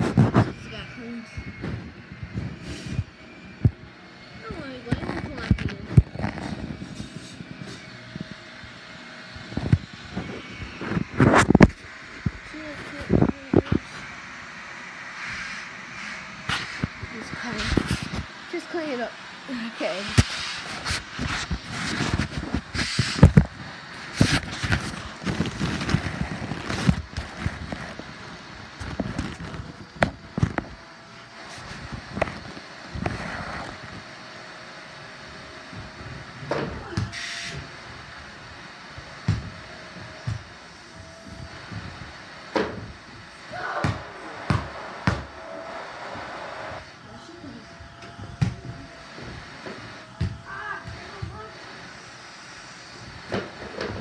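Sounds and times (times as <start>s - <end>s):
handling noise rubbing on microphone: 0.0s - 0.8s, 4.5s - 7.8s, 20.0s - 28.2s, 31.4s - 33.9s.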